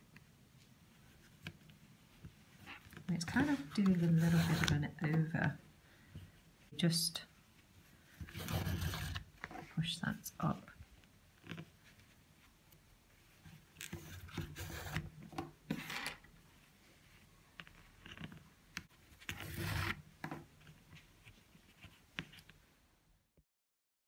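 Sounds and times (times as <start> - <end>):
cord rubbing and rustling: 0.6 - 5.6, 7.4 - 22.7
scraping on cardboard: 2.7 - 4.8, 8.2 - 9.6, 13.8 - 15.1, 19.2 - 20.4.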